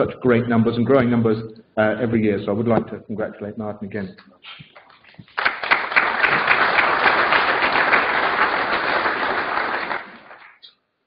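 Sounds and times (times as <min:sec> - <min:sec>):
audience applauding: 0:04.7 - 0:10.6.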